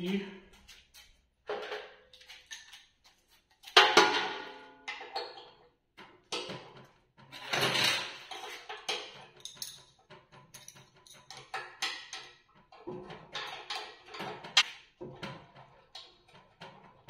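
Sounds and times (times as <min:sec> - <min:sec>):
steel tools clinking on metal: 0:07.6 - 0:12.3.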